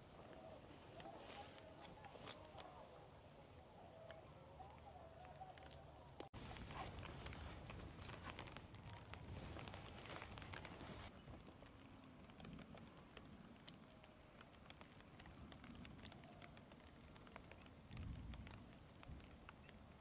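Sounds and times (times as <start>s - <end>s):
light clicks and rustles: 4.0s - 20.0s
insect chirping: 11.1s - 20.0s.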